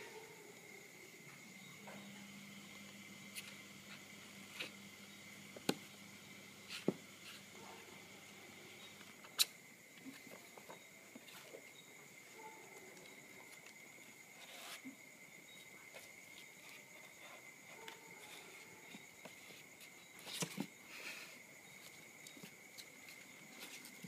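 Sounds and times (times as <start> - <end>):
claws scraping cardboard: 14.4 - 15.0
kittens scratching on paper: 14.4 - 15.0.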